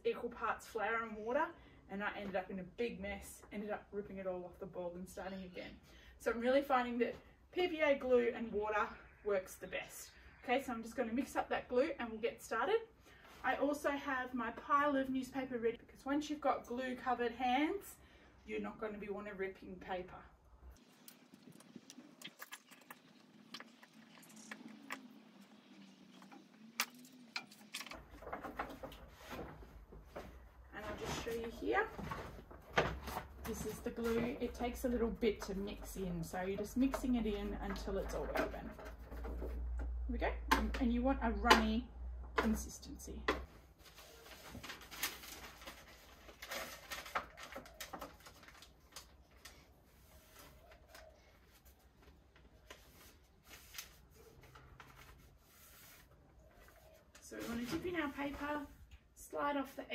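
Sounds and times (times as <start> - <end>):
newspaper strips rustling: 43.8 - 56.1.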